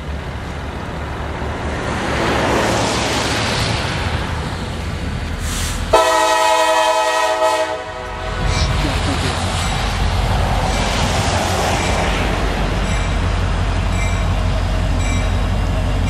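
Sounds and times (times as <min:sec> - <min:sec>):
diesel locomotive rumbling: 0:00.0 - 0:16.0
train air horn chord: 0:05.9 - 0:08.4.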